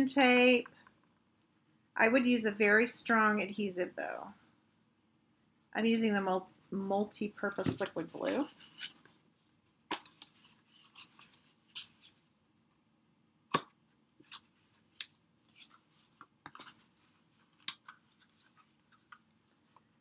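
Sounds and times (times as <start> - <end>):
paper rustling: 7.5 - 12.3.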